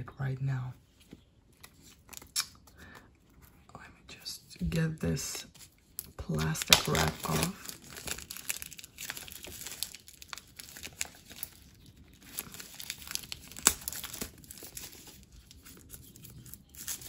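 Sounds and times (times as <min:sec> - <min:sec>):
cellophane wrap crinkling and tearing: 0:05.5 - 0:17.0.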